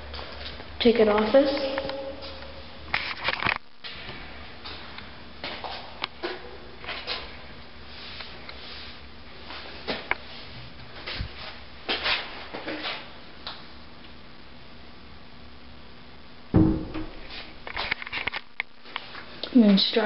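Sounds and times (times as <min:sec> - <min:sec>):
steady low hum: 0:00.0 - 0:20.0
loud thump: 0:16.5 - 0:17.4
knocks and clunks: 0:16.6 - 0:17.2.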